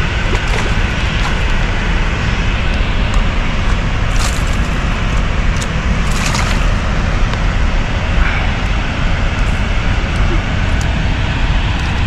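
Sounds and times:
fish splashing at water surface: 0:00.0 - 0:02.0, 0:04.0 - 0:07.0
steady low rumble: 0:00.0 - 0:12.0.

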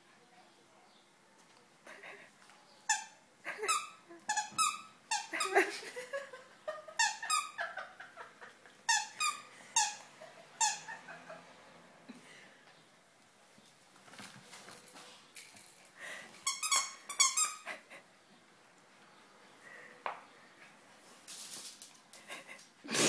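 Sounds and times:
dog toy squeaking: 0:02.9 - 0:05.6, 0:07.0 - 0:07.6, 0:08.9 - 0:10.0, 0:10.6 - 0:10.9, 0:16.4 - 0:17.7.

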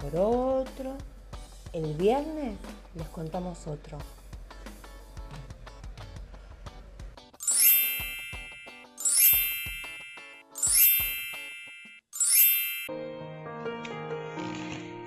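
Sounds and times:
soft background music: 0:00.0 - 0:11.5
bright sparkling chime: 0:07.4 - 0:12.9.

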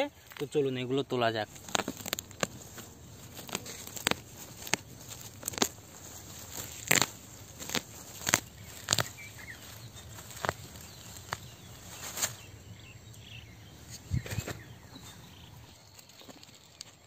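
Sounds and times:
plant stems snapping and crackling: 0:01.4 - 0:12.5.

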